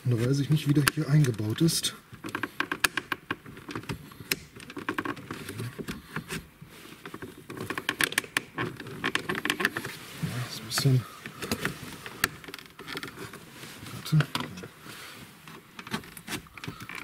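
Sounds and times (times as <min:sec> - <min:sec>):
plastic trim clicking and rattling: 0:02.2 - 0:06.4, 0:07.1 - 0:09.9.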